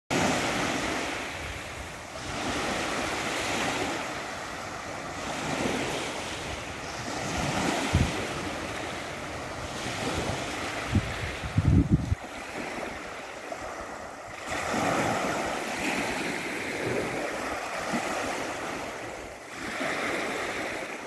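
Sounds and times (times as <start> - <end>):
small waves washing up beach: 0.1 - 21.0
wind buffeting microphone: 5.2 - 20.8.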